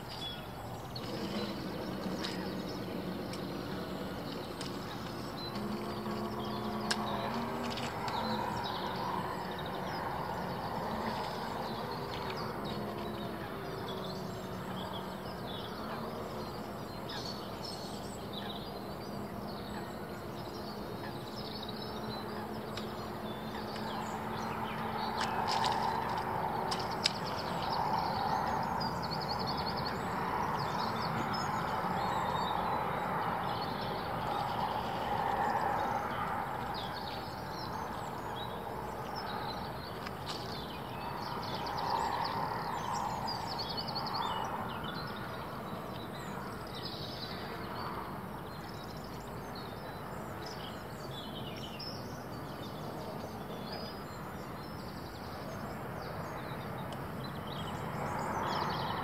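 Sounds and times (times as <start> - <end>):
small birds chirping: 0.0 - 59.0
electric boat motors humming: 0.4 - 15.2.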